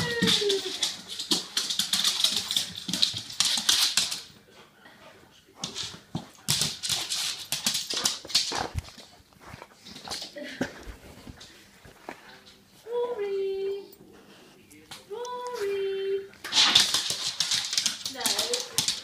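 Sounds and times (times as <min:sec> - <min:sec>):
dog scrabbling: 0:00.0 - 0:04.3, 0:16.4 - 0:19.0.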